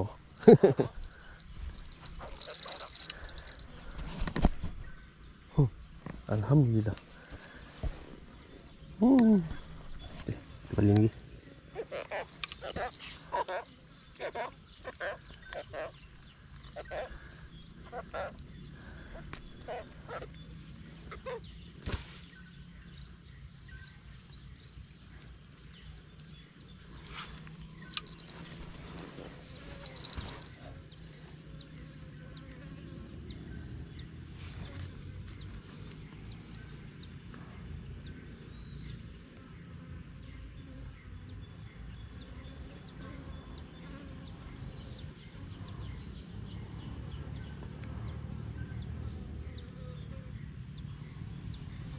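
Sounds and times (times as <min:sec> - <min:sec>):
high-pitched insect chorus: 0:00.0 - 0:51.9
handling clicks and rustles: 0:01.0 - 0:04.9, 0:12.3 - 0:14.4, 0:27.0 - 0:31.0.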